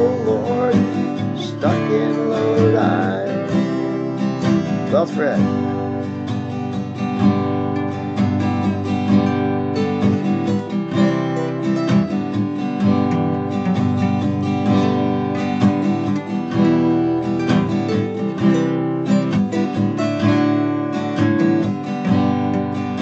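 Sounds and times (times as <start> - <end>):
acoustic guitar strumming: 0.0 - 23.0.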